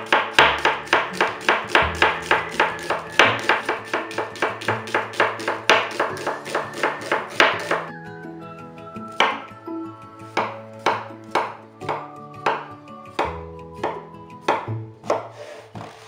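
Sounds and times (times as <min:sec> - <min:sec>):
knife slicing on a cutting board: 0:14.5 - 0:16.0.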